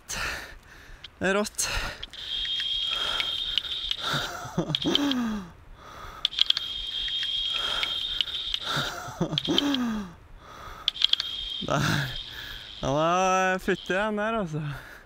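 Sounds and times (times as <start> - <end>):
fishing reel drag buzzing: 2.1 - 5.2, 6.2 - 9.7, 10.8 - 14.0.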